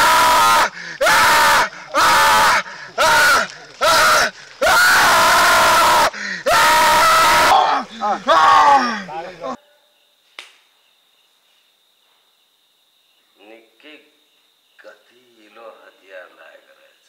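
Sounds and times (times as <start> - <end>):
man screaming in pain: 0.0 - 9.5.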